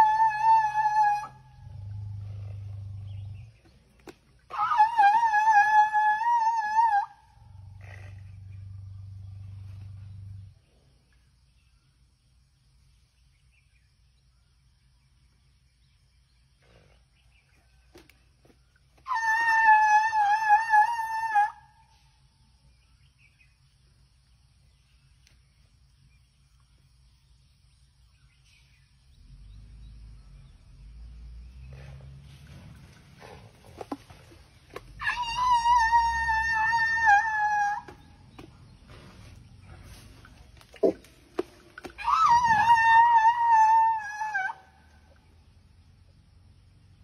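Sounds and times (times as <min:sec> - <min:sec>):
elephant low rumble: 0:00.0 - 0:11.7, 0:28.1 - 0:47.0
elephant high wavering squeal: 0:19.0 - 0:22.0, 0:34.8 - 0:39.0, 0:41.8 - 0:44.8.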